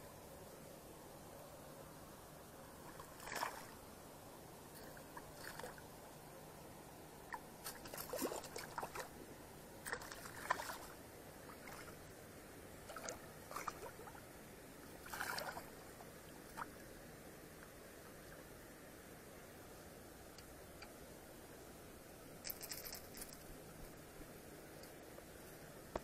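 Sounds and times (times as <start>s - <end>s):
faint low hum: 0.0s - 26.0s
river water sloshing and splashing: 2.8s - 3.9s, 4.7s - 6.0s, 7.3s - 9.2s, 9.8s - 12.2s, 12.8s - 16.9s.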